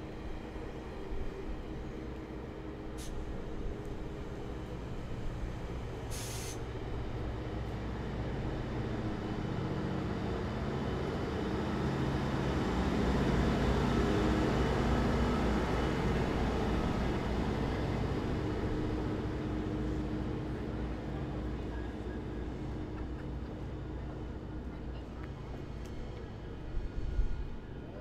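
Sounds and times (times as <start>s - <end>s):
locomotive engine rumble: 0.0s - 28.0s
short hiss: 6.1s - 6.6s.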